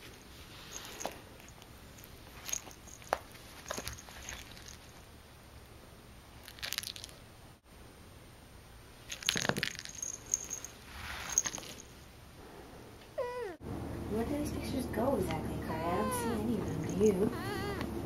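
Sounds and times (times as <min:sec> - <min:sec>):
cat collar bell jingling: 0:00.0 - 0:05.0, 0:09.1 - 0:12.0, 0:16.1 - 0:17.8
fur rustling on carpet: 0:10.4 - 0:11.9.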